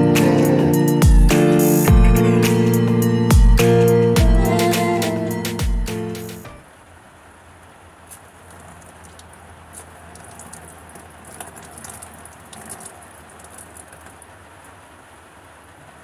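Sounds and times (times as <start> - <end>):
steady rain falling: 6.6 - 16.0
water drips and splashes: 7.5 - 16.0.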